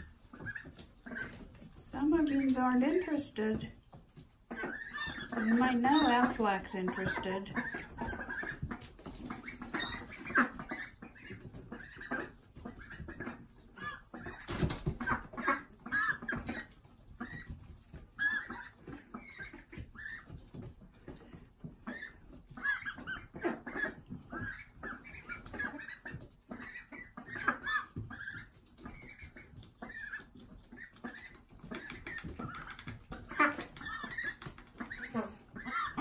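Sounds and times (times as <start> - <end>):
ducklings calling: 0.0 - 3.6, 4.4 - 20.4, 21.7 - 36.0.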